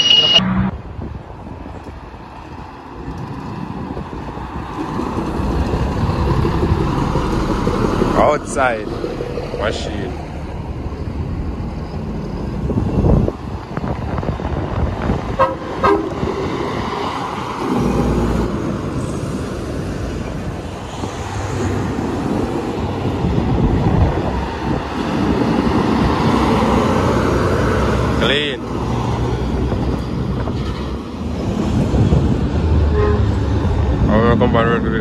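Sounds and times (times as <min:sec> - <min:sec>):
trucks driving past: 0:00.0 - 0:35.0
truck horn toots: 0:15.4 - 0:16.2, 0:32.9 - 0:33.4.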